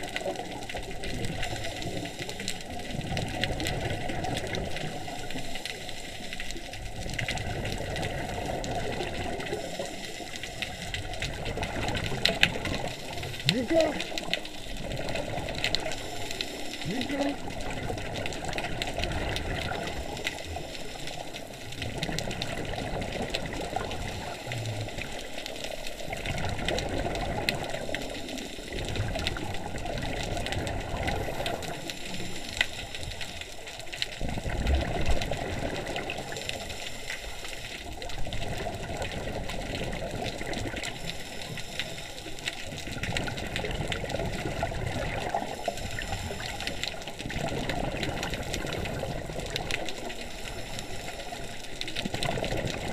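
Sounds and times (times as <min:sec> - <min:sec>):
exhaled bubbles gushing: 0:00.0 - 0:52.9.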